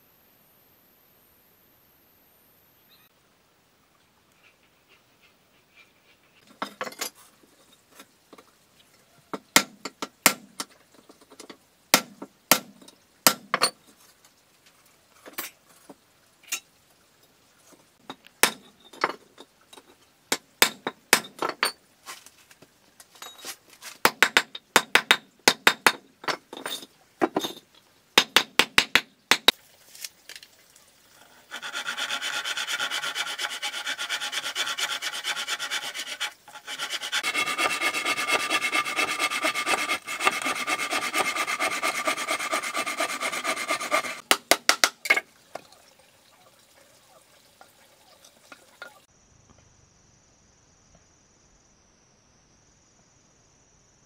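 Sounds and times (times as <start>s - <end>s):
metal tool tapping stone brick: 20.3s - 21.8s, 28.2s - 29.6s, 44.3s - 45.2s
handsaw cutting wood: 31.2s - 44.2s.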